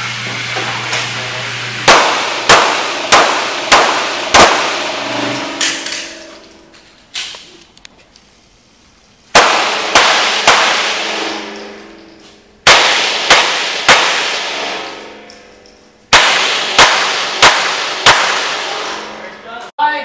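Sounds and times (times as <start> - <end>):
handgun shots echoing indoors: 1.8 - 7.4, 9.3 - 19.4.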